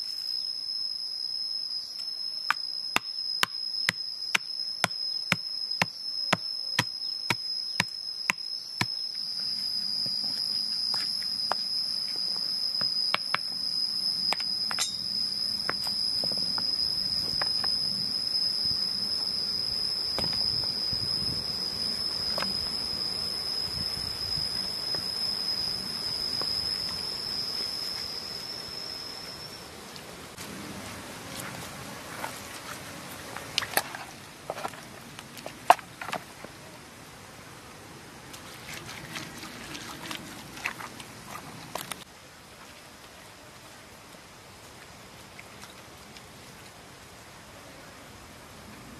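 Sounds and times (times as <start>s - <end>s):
high-pitched insect drone: 0.0s - 30.4s.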